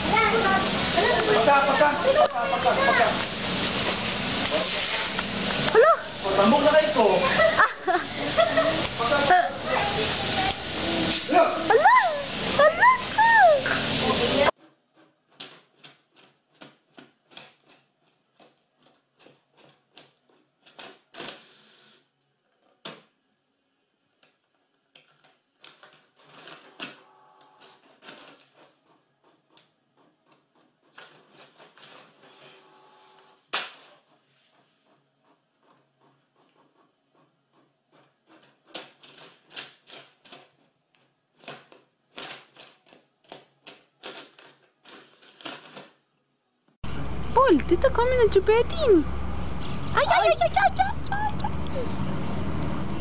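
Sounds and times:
printer motor whirring: 26.6 - 31.3, 32.2 - 39.0, 46.8 - 53.0.

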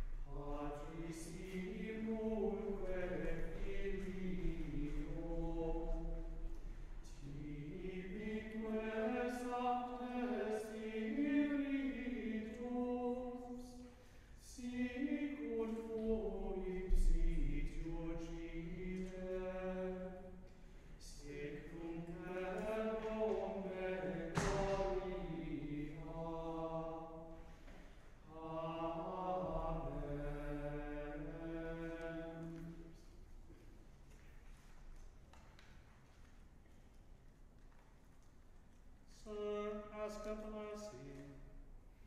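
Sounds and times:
men singing plainchant: 21.2 - 27.2.

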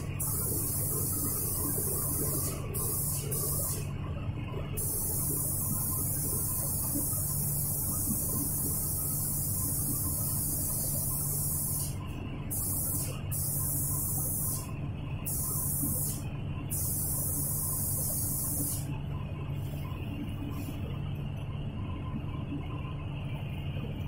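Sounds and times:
spray gun hissing: 0.0 - 3.8, 4.8 - 14.7, 15.3 - 18.9
steady low hum: 0.0 - 24.0.

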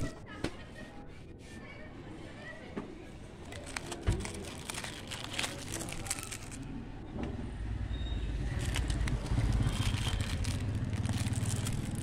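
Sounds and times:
plastic sleeves crackling: 3.4 - 6.7, 8.5 - 12.0
vehicle engine running: 8.3 - 12.0.

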